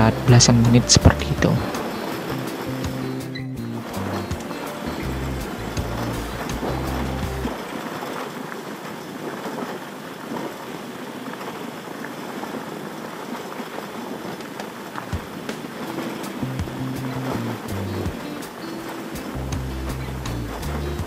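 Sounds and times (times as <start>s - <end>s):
motorcycle riding on gravel: 0.0s - 9.7s, 14.5s - 21.0s.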